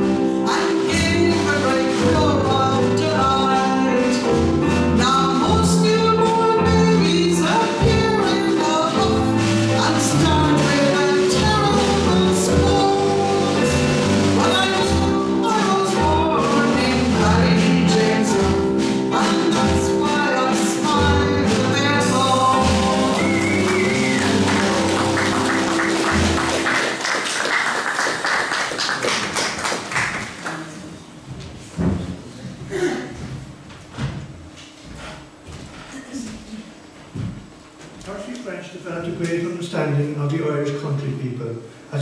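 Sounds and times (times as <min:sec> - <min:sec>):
live singing with instruments: 0:00.0 - 0:27.5
audience applause: 0:22.7 - 0:30.8.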